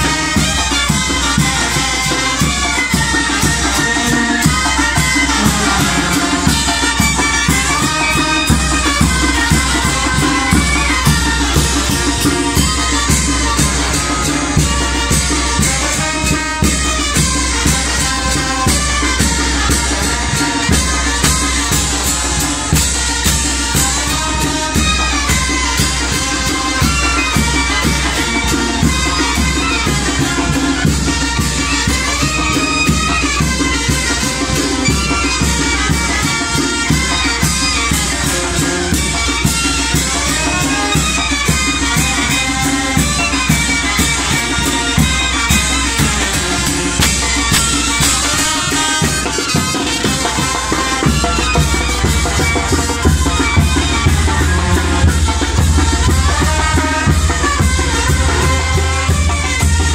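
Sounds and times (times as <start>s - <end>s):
brass band playing dance tune: 0.0s - 59.9s
snare drum: 0.0s - 59.9s
bass drum: 3.8s - 16.0s, 45.9s - 49.1s.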